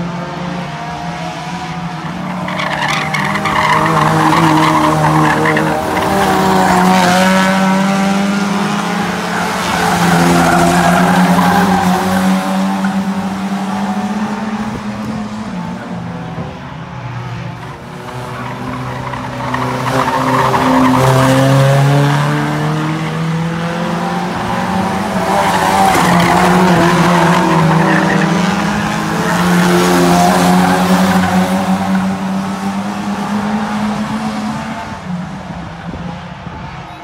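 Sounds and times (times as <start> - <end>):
race car engines revving: 0.0 - 37.0.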